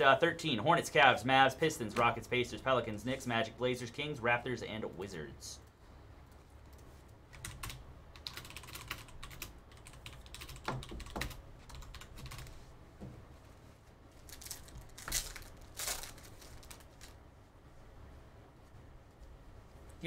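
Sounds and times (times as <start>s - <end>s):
keyboard typing: 6.7s - 12.5s
foil pack crinkling: 14.2s - 17.2s.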